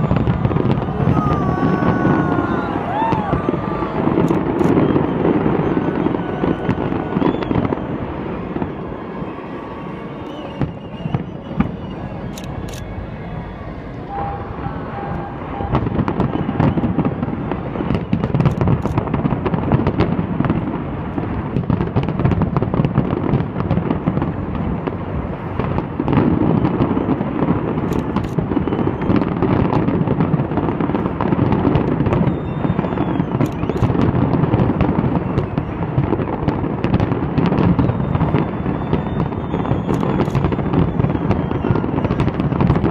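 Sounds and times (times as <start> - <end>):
fireworks crackling: 0.0 - 42.9
fireworks shell bursts booming: 10.5 - 24.3.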